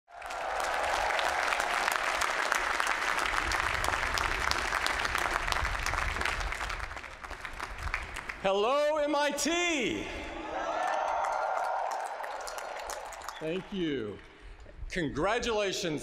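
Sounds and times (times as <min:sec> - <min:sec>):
crowd applauding: 0:00.1 - 0:08.5, 0:10.6 - 0:13.7.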